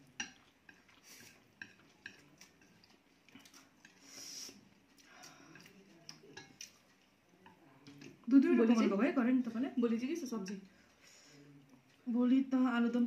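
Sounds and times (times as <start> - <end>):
chopsticks clicking on plates: 0.1 - 4.0, 5.0 - 8.2
chewing noodles: 0.2 - 8.3.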